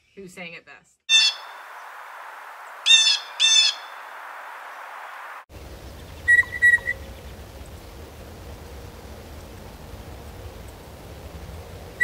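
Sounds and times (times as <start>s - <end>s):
blue jay calling: 1.1s - 2.0s, 2.7s - 4.0s, 5.6s - 8.0s
steady hiss: 3.9s - 12.0s.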